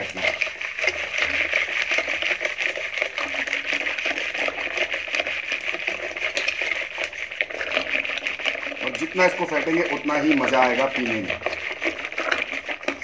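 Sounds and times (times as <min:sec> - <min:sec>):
fast irregular clicks: 0:00.0 - 0:13.0
hand churner splashing in bowl: 0:00.0 - 0:13.0.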